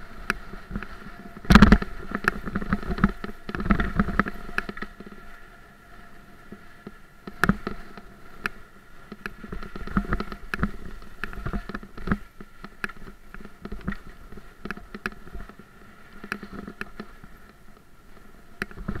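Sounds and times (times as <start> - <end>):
bike rattling over bumps: 0.0 - 5.4, 6.5 - 19.0
tyre and wind rumble: 0.0 - 8.5.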